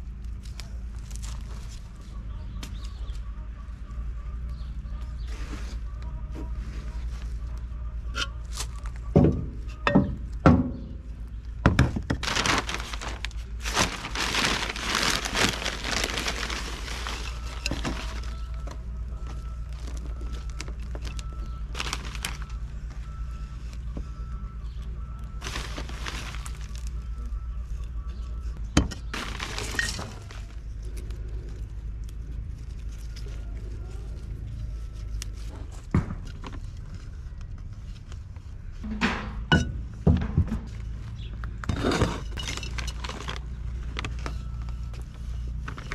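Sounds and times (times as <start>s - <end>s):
plastic bag rustling: 11.9s - 23.0s, 25.3s - 27.2s, 29.0s - 31.5s, 41.8s - 45.9s.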